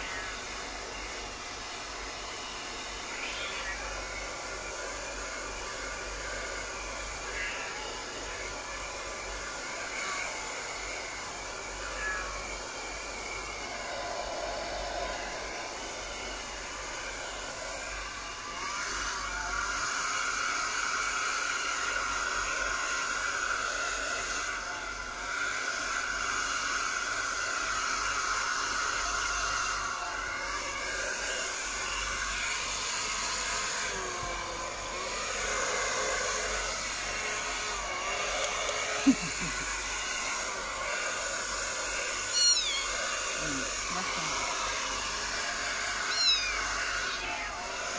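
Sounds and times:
hair dryer blowing: 0:00.0 - 0:47.9
kitten mewing: 0:03.1 - 0:03.9, 0:38.4 - 0:39.7, 0:42.2 - 0:44.1, 0:46.1 - 0:47.6.

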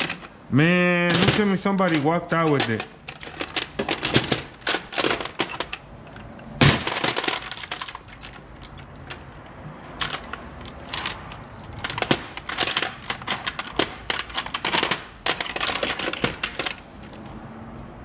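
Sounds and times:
metal tools clinking in toolbox: 0:00.0 - 0:17.3
loud metal clank: 0:06.6 - 0:07.6.

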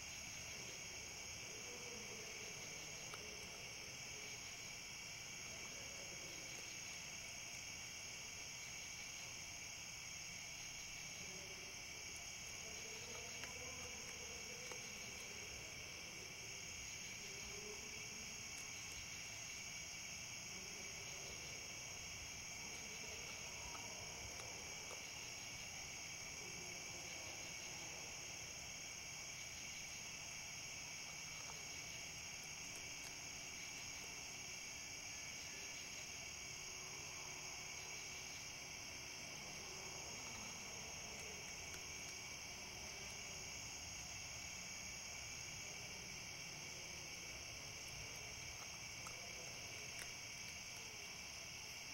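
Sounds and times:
night insects chirring: 0:00.0 - 0:51.9
faint clicks: 0:12.2 - 0:15.3, 0:47.8 - 0:50.9.

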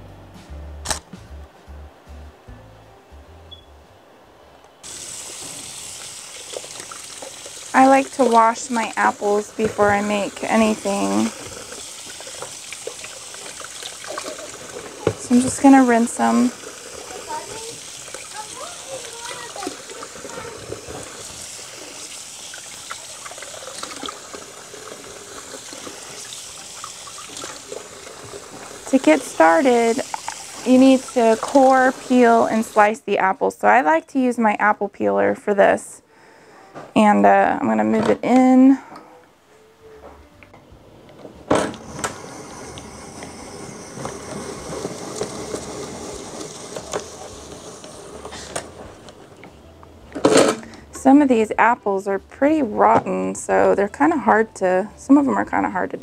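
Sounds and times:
faucet running water: 0:04.8 - 0:33.2, 0:41.6 - 0:49.3
apple peeler scraping whir: 0:41.8 - 0:49.0.

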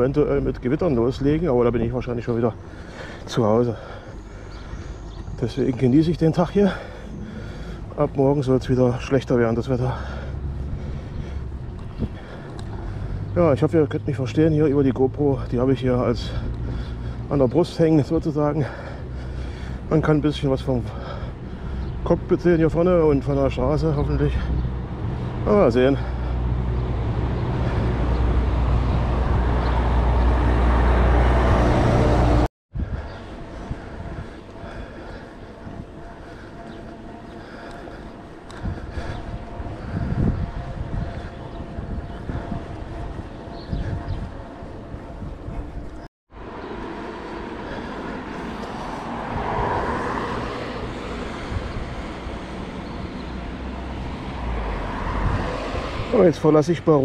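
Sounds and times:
road traffic hum: 0:00.0 - 0:57.0
bicycle tyre rumble: 0:02.5 - 0:13.7, 0:15.7 - 0:56.5
wind on microphone: 0:10.6 - 0:13.4, 0:26.4 - 0:36.8, 0:38.4 - 0:46.8, 0:47.9 - 0:56.2.

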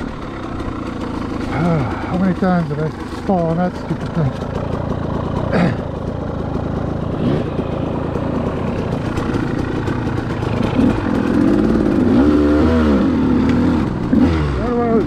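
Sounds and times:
two-stroke dirt bike engine: 0:00.0 - 0:15.0.

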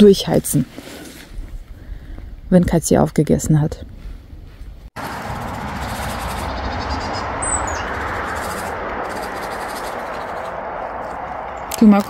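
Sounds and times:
steady rushing outdoor noise: 0:05.0 - 0:12.0.

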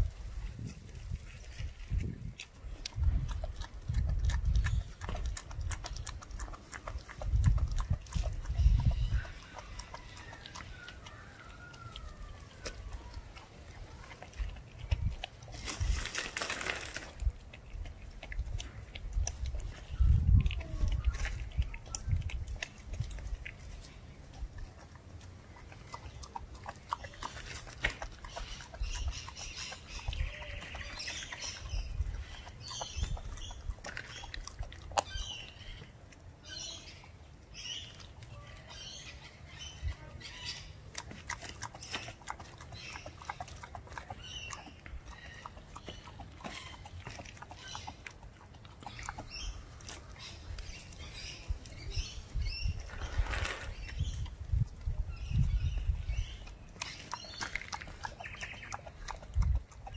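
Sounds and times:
puppy chewing bone: 0:00.5 - 0:52.9, 0:53.7 - 0:59.9.

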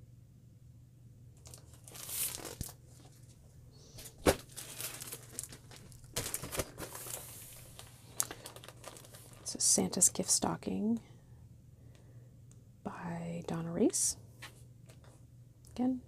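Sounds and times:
plastic packages crinkling: 0:01.4 - 0:03.4, 0:04.0 - 0:09.6.

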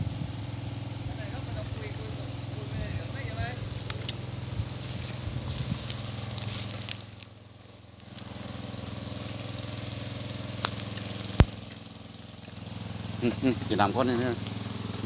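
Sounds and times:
small engine running: 0:00.0 - 0:15.0
crackling: 0:01.2 - 0:15.0.

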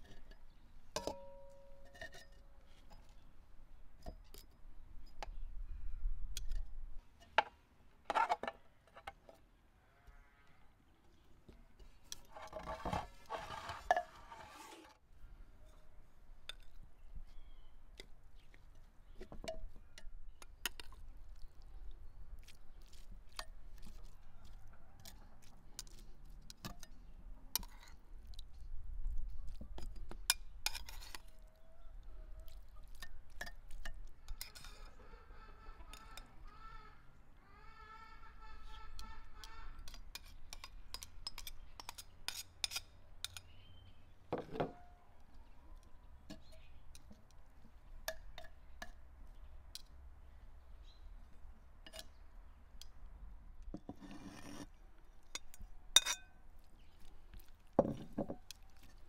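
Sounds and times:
soft wet food sounds: 0:09.6 - 0:12.6, 0:14.5 - 0:37.2, 0:45.1 - 0:59.0.

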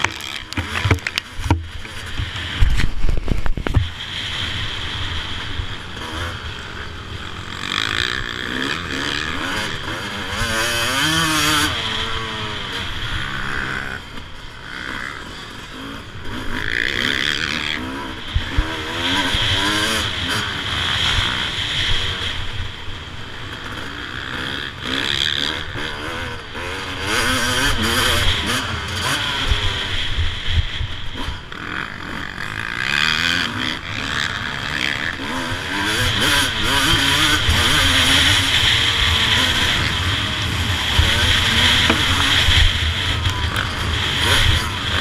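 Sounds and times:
motorcycle engine revving: 0:00.0 - 0:45.0.

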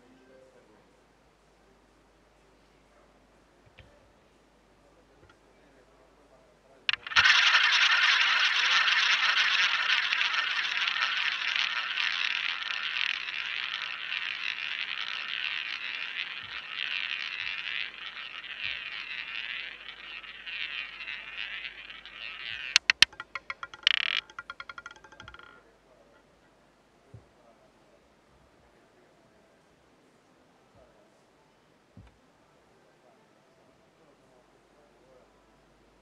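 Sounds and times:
roulette ball clattering clicks: 0:06.9 - 0:25.7
roulette ball whirring: 0:06.9 - 0:25.7.

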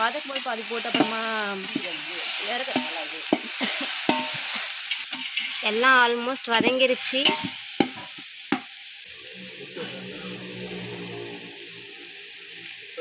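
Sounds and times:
food sizzling in hot oil: 0:00.0 - 0:13.0
metal ladle knocking on pot: 0:00.9 - 0:01.9.

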